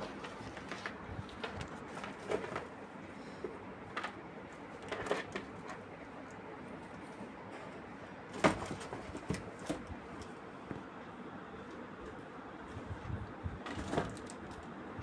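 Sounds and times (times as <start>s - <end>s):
cats scratching cardboard box: 6.9s - 10.4s.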